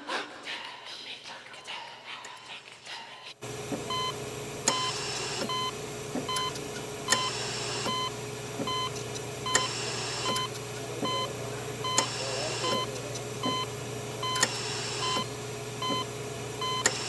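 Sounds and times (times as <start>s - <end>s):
steady low hum: 3.4s - 17.0s
short electronic beeps: 6.3s - 8.1s, 8.7s - 11.3s, 11.9s - 17.0s.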